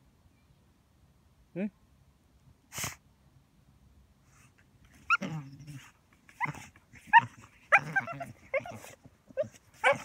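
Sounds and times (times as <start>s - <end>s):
dog breathy burst: 2.7s - 3.0s
dog whining and grumbling: 5.0s - 10.0s.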